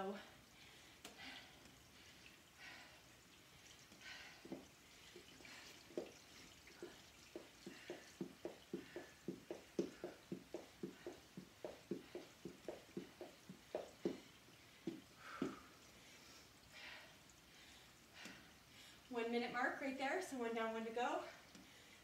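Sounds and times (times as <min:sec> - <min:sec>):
feet thudding on floor mat: 0:04.4 - 0:15.7.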